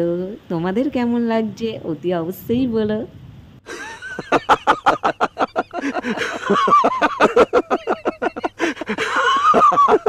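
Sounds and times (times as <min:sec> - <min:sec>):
men laughing in rapid bursts: 0:03.7 - 0:10.0.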